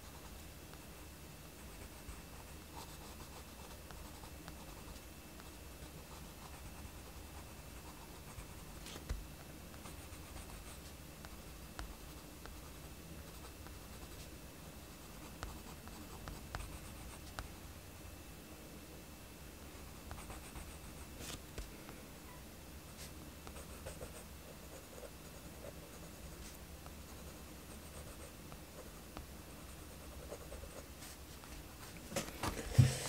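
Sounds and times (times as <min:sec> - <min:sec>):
pencil scratching on paper: 0:29.6 - 0:30.9
pencil tip tapping paper: 0:32.6 - 0:33.0.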